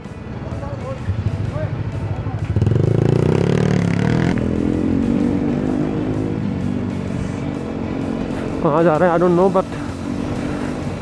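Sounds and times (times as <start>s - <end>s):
motorcycle engine running: 0.6s - 11.0s.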